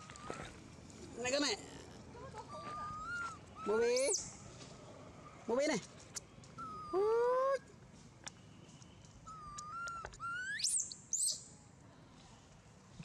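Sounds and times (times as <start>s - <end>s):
baby monkey crying out: 2.4s - 4.2s.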